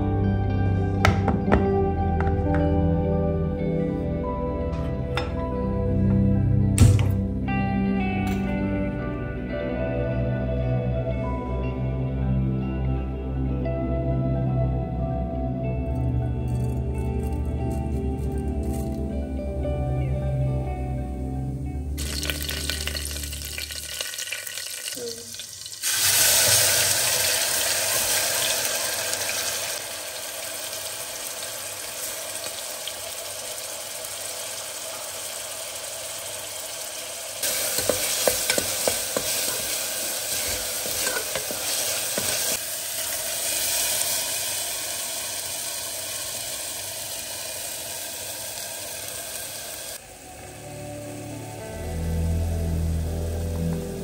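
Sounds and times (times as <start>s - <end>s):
food sizzling in hot oil: 22.0s - 53.5s
spatula scraping a pot: 37.7s - 42.6s.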